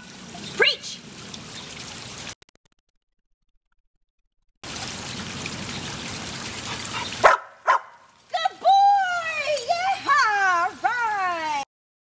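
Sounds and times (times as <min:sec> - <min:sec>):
outdoor background hiss: 0:00.0 - 0:02.3, 0:04.7 - 0:11.6.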